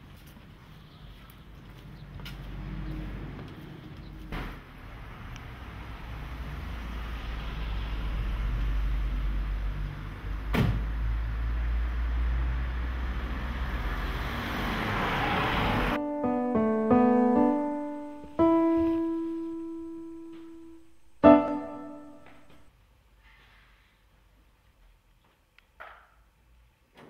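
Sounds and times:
street noise low rumble: 0.0 - 23.2
solo piano: 15.9 - 22.7.

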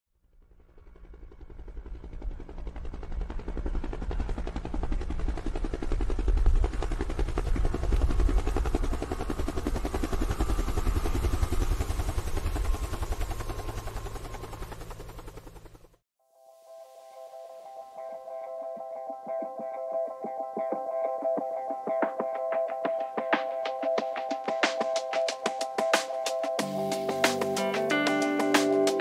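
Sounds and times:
helicopter rotor chopping: 0.5 - 16.0, 21.8 - 29.0.

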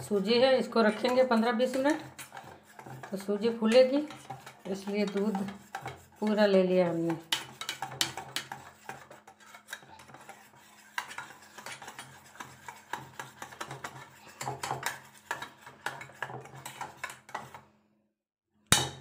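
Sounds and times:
wire whisk scraping steel bowl: 0.0 - 17.6.

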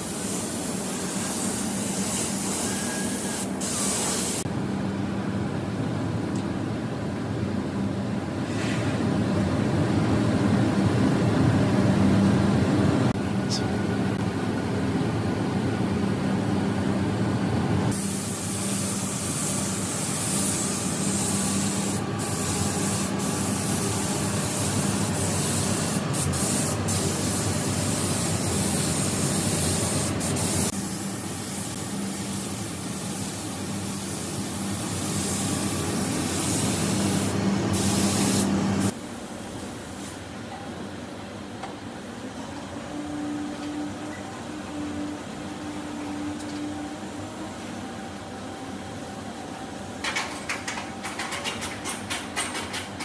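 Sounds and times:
paint spray gun hissing: 0.0 - 4.5, 17.9 - 39.0.

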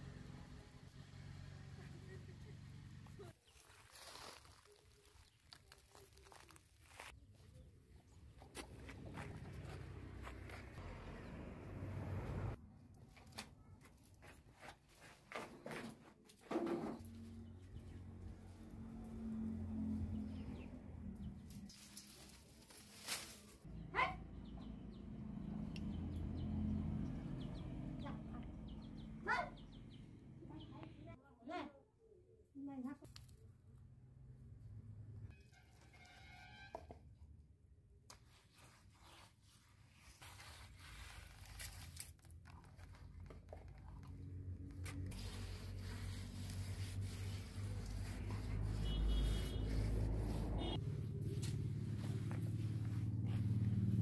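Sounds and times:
hand rubbing wet mud: 3.5 - 7.5, 38.2 - 54.0
small birds chirping: 23.7 - 31.2.

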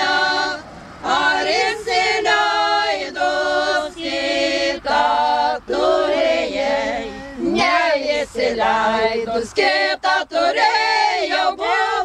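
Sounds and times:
women singing unaccompanied: 0.0 - 12.0.

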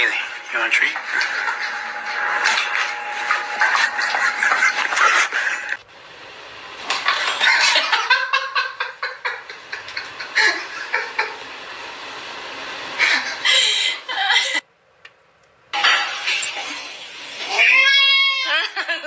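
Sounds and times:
person laughing: 3.8 - 5.7, 7.0 - 11.5, 13.0 - 14.6.

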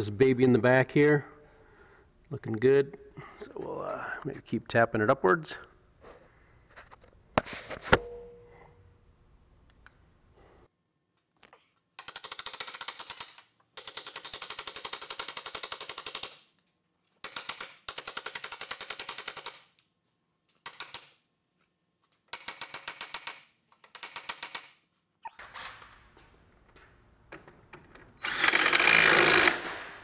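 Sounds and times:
impact wrench hammering: 28.2 - 30.0.

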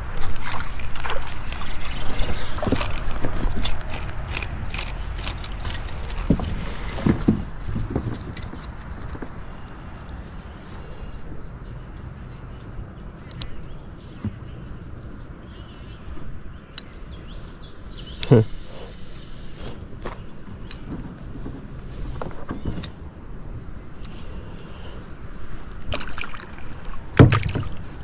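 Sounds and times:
clicks knocks and rustles: 2.6 - 9.4.

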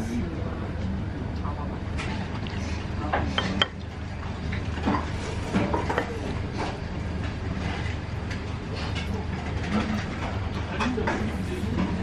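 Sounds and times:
utensil tapping ceramic bowl: 3.4 - 3.8.

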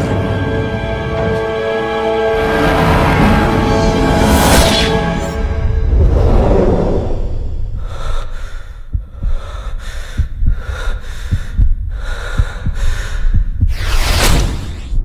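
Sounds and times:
low thuds: 5.6 - 15.0
rapid panting breaths: 7.8 - 13.7.

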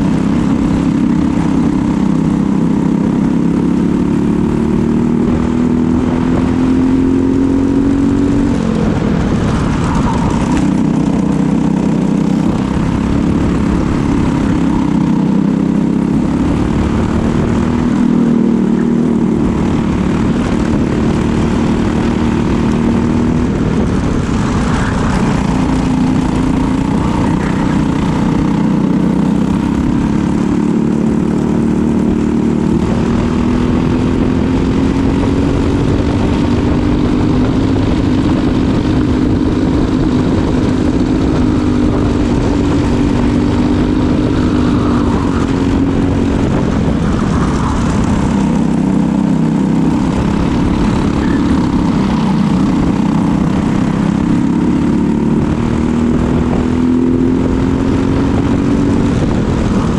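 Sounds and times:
kart engine racing: 0.0 - 59.9.

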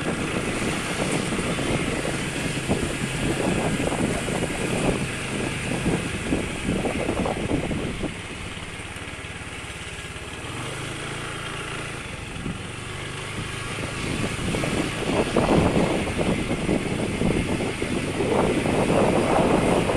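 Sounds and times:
motorcycle engine running: 0.0 - 19.9
wind buffeting microphone: 0.0 - 19.9.

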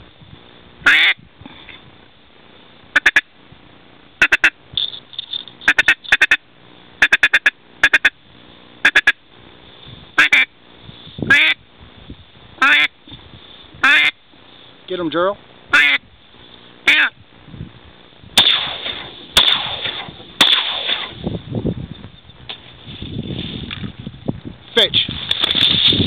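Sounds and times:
duck quacking: 0.8 - 1.2, 3.0 - 3.3, 4.2 - 4.6, 5.6 - 6.4, 7.0 - 8.2, 8.8 - 9.2, 10.2 - 10.5, 11.3 - 11.6, 12.6 - 12.9, 13.8 - 14.2, 15.7 - 16.0, 16.8 - 17.2.

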